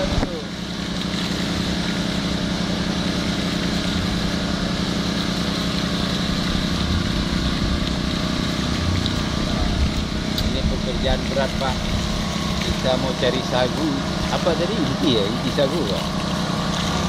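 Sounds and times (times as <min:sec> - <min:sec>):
engine-driven water pump running: 0:00.0 - 0:17.0.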